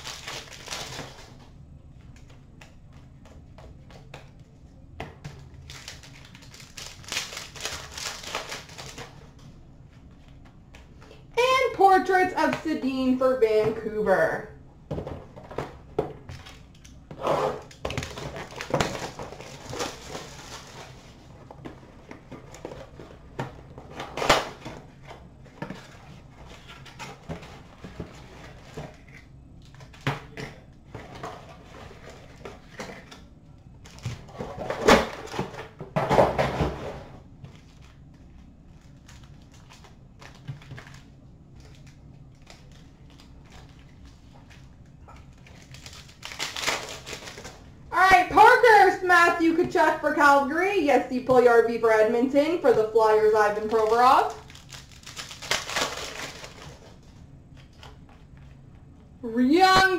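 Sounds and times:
foil wrappers rustling and crinkling: 0.0s - 1.4s, 5.5s - 9.4s, 17.7s - 23.2s, 37.4s - 47.7s, 53.2s - 58.6s.

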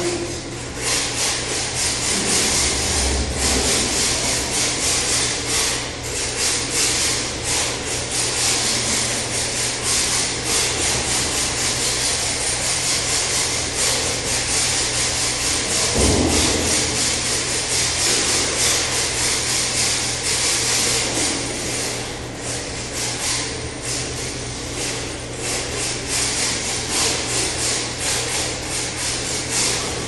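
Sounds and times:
low thud: 15.9s - 17.4s.

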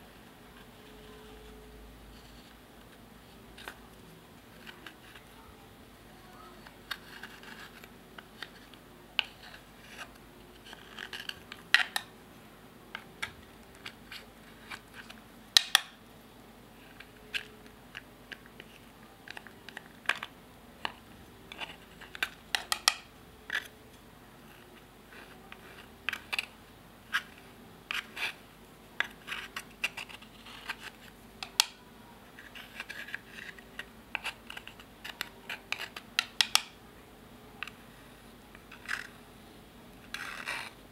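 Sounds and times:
metal spatula scratching eyeshadow: 6.4s - 12.1s, 24.5s - 28.4s, 29.0s - 31.6s, 32.3s - 36.0s, 40.0s - 40.8s.

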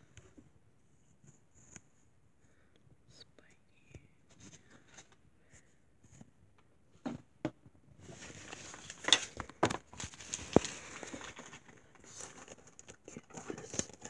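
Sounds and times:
plastic wrapper crinkling: 8.2s - 14.0s.

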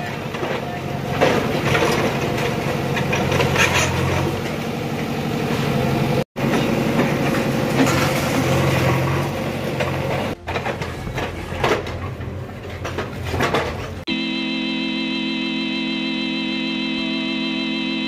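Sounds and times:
bucket scraping through rubble: 0.0s - 4.7s, 6.5s - 14.0s
diesel engine running: 0.0s - 18.0s.

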